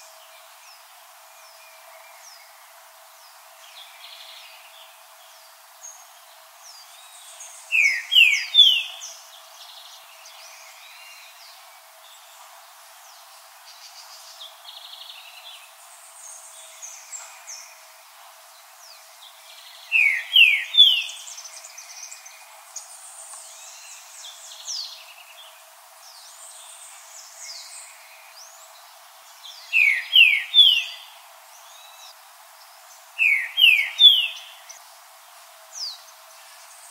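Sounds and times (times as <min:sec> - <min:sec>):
bird singing slurred whistles: 0:29.7 - 0:31.0, 0:33.2 - 0:34.5
faint high bird chirps: 0:33.2 - 0:34.8.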